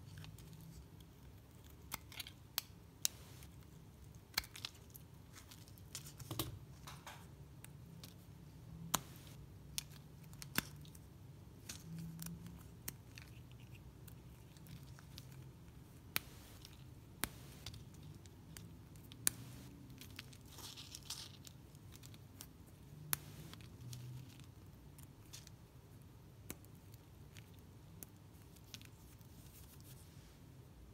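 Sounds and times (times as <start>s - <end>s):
dry soap snapping and crunching: 0.1s - 3.1s, 3.9s - 6.2s, 9.7s - 25.6s.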